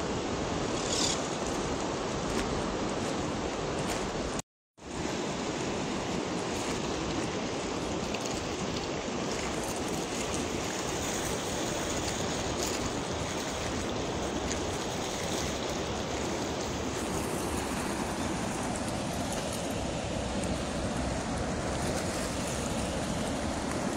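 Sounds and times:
fast-flowing river rushing: 5.0s - 23.9s.

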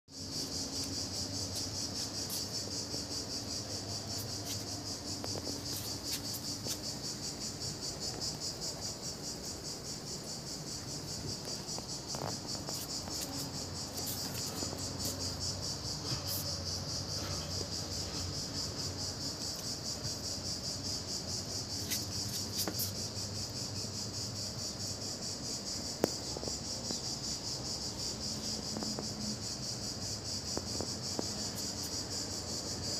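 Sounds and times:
insect chorus with pulsing trill: 0.1s - 32.9s.

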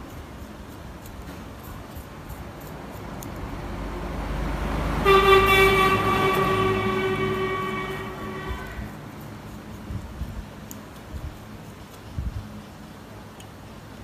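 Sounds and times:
vehicle horn long note: 5.0s - 9.0s.

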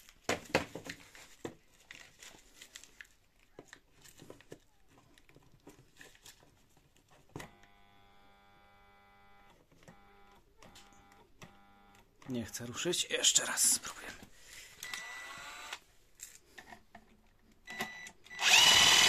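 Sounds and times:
handling clicks and rustles: 0.0s - 7.5s
electric motor humming: 15.0s - 15.8s, 18.4s - 19.0s.

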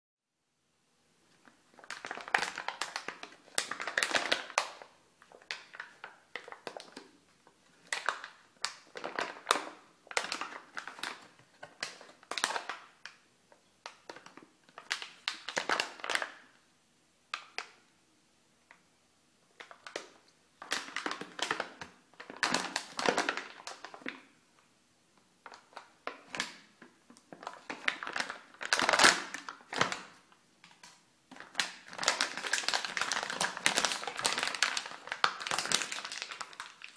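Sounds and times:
foil packet crinkling: 1.7s - 7.1s, 7.8s - 13.2s, 19.6s - 24.2s, 25.4s - 36.9s.

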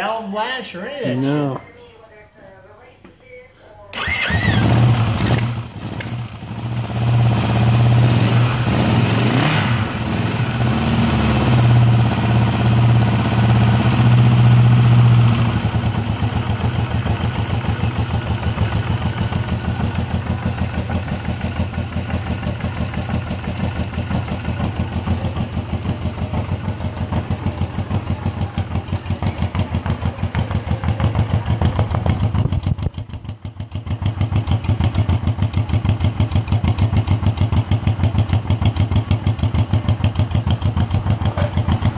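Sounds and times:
motorcycle engine idling: 4.0s - 9.1s, 9.8s - 41.9s
engine revving: 4.0s - 19.7s.

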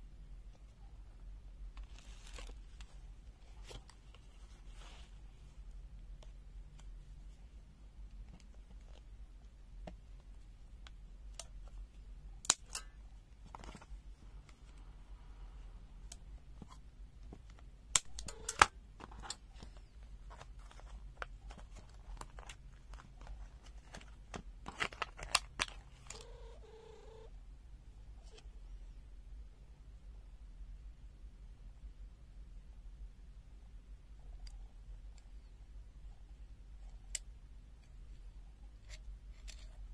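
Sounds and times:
card and plastic rustling: 1.8s - 5.2s, 13.4s - 14.7s, 16.5s - 27.2s.

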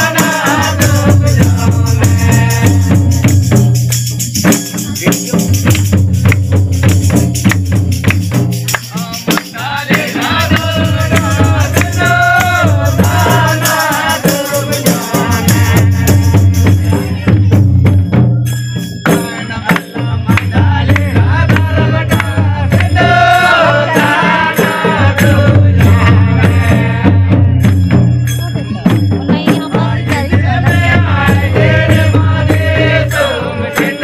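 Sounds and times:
person singing devotional song: 0.0s - 3.9s, 8.7s - 17.2s, 19.1s - 27.8s, 28.8s - 34.0s
drum beat: 0.0s - 34.0s
jingling hand percussion: 0.0s - 34.0s.

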